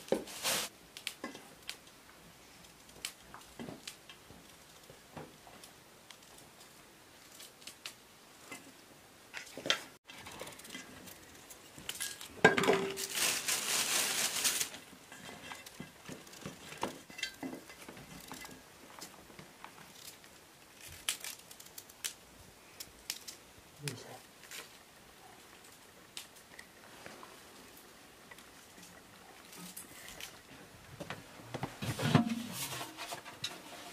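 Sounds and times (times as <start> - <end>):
clatter and rustling: 9.3 - 22.1, 26.5 - 33.9.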